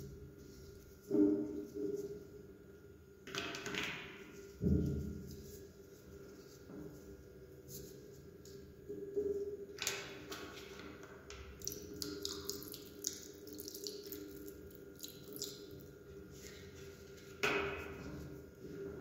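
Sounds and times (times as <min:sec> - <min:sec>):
water splashing and dripping: 0:11.5 - 0:16.0
water pouring onto meat: 0:11.6 - 0:15.9.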